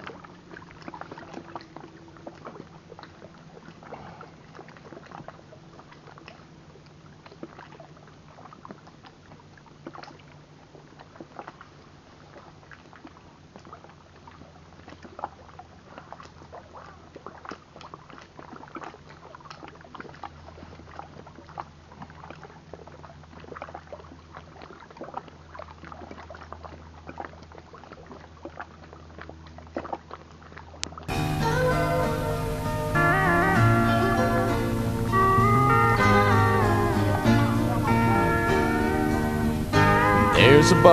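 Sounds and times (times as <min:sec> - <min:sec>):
low steady hum: 0:30.8 - 0:40.9
music: 0:31.1 - 0:40.9.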